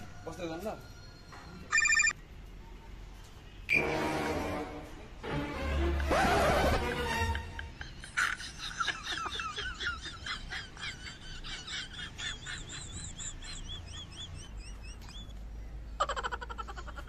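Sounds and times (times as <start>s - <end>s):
high bird-like chirps: 0.7s - 2.2s, 12.4s - 16.0s.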